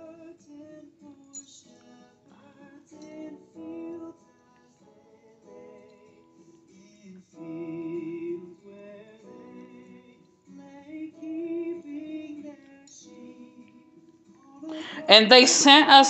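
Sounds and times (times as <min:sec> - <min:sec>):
soft accompaniment: 0:09.3 - 0:16.0
woman singing slow melody: 0:14.6 - 0:16.0.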